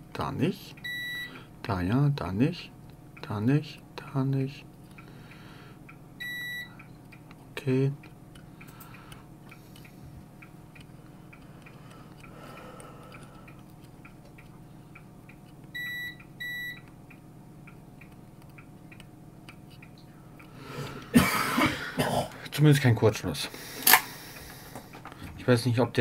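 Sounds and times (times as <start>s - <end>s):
multimeter beeping: 0.8s - 1.4s, 6.2s - 6.8s, 15.7s - 16.9s.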